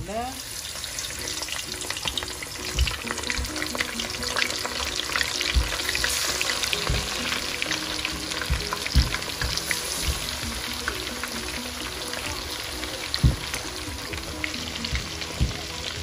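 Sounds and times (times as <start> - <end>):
fish deep-frying in oil: 0.0 - 16.0
dull low thumps: 2.7 - 4.1, 5.5 - 7.7, 8.4 - 10.8, 13.1 - 16.0.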